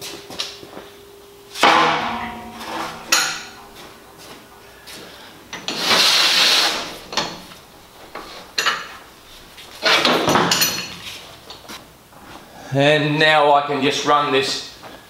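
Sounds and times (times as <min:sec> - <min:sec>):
metal scraping on steel sheet: 0:01.6 - 0:03.8, 0:05.7 - 0:07.0
metallic knocks: 0:01.6 - 0:04.3
metallic ringing: 0:01.6 - 0:04.7.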